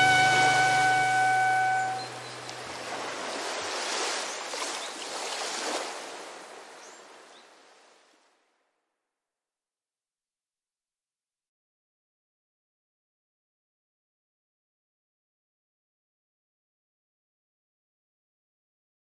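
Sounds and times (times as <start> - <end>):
music chord: 0.0 - 2.7
waves washing on beach: 0.0 - 8.3.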